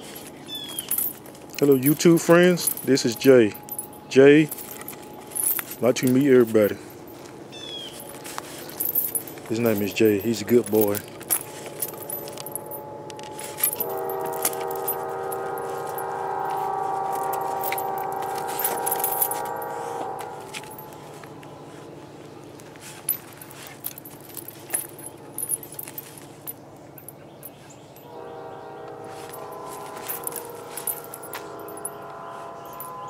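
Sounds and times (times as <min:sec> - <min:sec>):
metal chain rattling: 0:00.0 - 0:28.2, 0:29.2 - 0:33.0
train horn: 0:11.4 - 0:22.2, 0:28.0 - 0:33.0.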